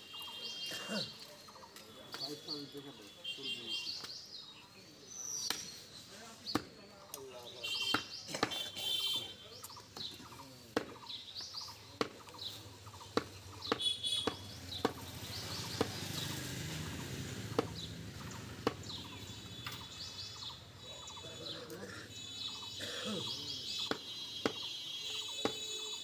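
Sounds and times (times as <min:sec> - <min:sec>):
birds chirping: 0:00.0 - 0:26.0
cleaver chopping meat on wood: 0:06.5 - 0:06.8, 0:10.0 - 0:11.1, 0:12.0 - 0:12.4, 0:13.1 - 0:16.2, 0:17.5 - 0:17.8, 0:18.5 - 0:19.0, 0:23.8 - 0:24.7, 0:25.4 - 0:25.7.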